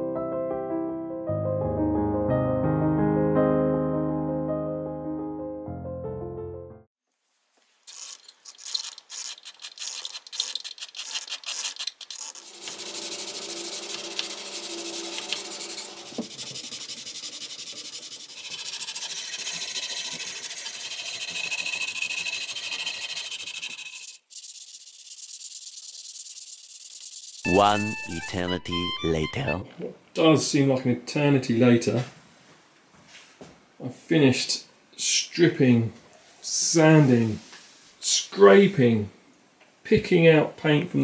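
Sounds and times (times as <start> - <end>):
sandpaper rubbing on wood: 7.9 - 28.2.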